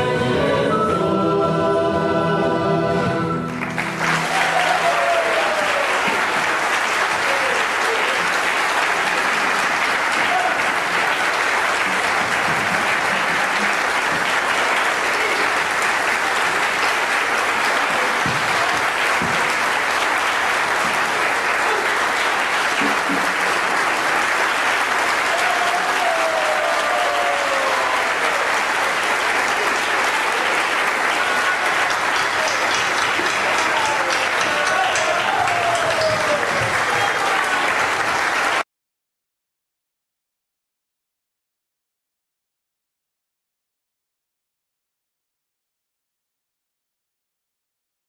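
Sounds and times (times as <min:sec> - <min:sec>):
audience applauding: 0:03.4 - 0:38.6.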